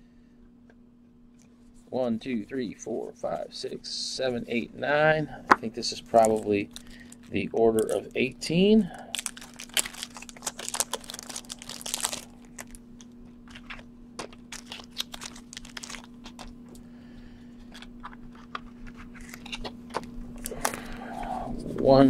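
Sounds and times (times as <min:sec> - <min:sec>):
plastic wrapping crinkling: 0:05.9 - 0:16.8, 0:17.7 - 0:20.9.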